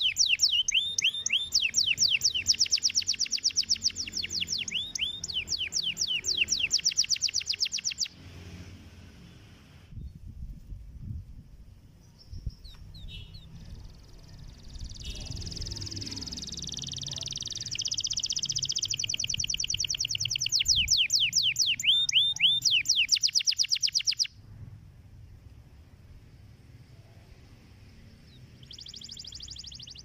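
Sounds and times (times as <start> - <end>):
canary singing trills: 0.0 - 8.2, 12.0 - 24.4, 27.9 - 30.0.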